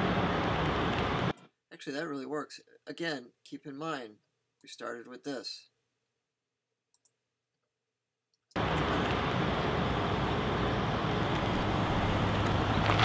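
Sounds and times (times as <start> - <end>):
cars driving along road: 8.6 - 13.0.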